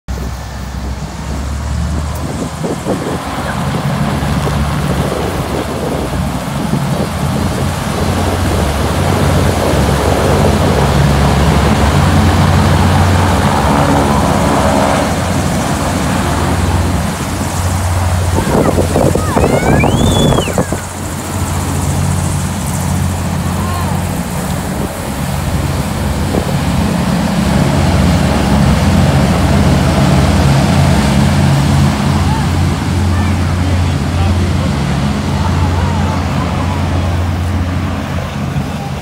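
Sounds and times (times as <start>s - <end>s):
broad rush of air: 0.1s - 39.0s
hovercraft engines droning: 0.1s - 39.0s.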